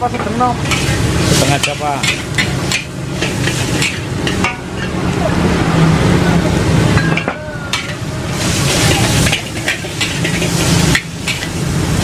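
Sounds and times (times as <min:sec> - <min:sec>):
food sizzling: 0:00.0 - 0:12.0
spatula scraping and clanking on wok: 0:00.1 - 0:05.1, 0:06.9 - 0:12.0.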